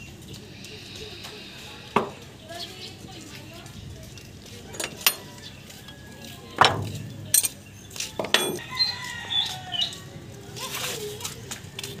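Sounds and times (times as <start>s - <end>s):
wrench clinking against metal: 4.7s - 6.0s, 6.6s - 7.6s, 8.2s - 8.6s.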